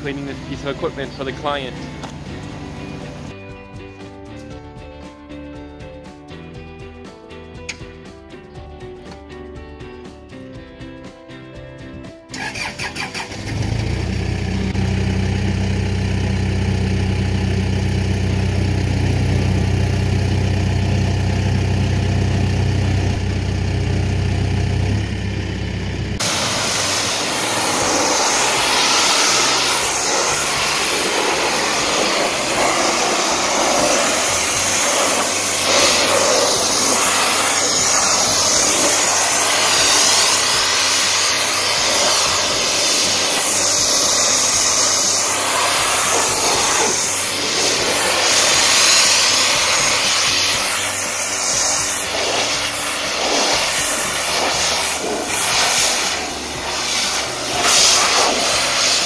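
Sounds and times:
engine running: 0.0 - 3.6, 12.3 - 59.0
pressure washer jet spraying metal: 26.2 - 59.0.

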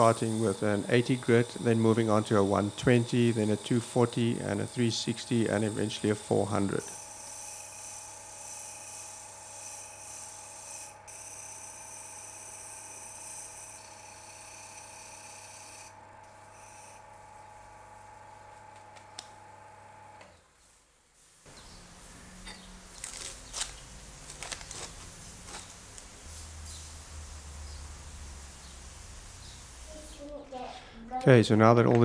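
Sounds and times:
sandpaper sanding hiss: 0.0 - 8.5
lathe motor hum: 0.0 - 20.2.

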